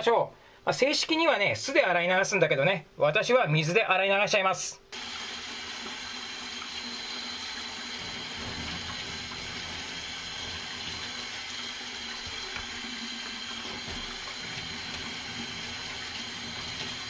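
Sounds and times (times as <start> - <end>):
tap running into a steel sink: 7.9 - 17.0.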